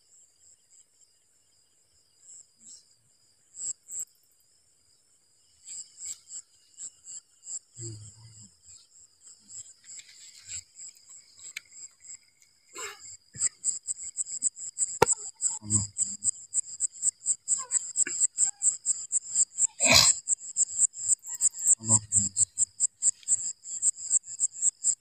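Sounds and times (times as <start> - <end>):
crickets chirping: 0.0 - 25.0.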